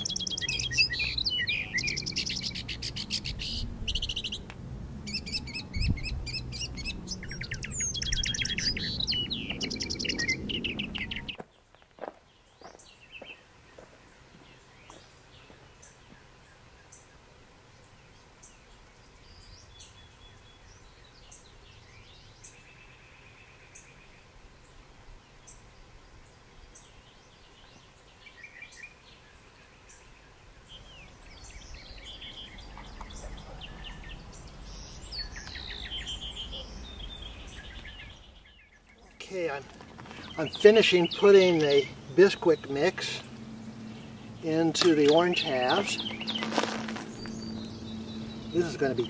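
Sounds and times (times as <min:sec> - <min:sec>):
birds chirping and singing: 0:00.0 - 0:49.0
low rumble: 0:42.9 - 0:49.0.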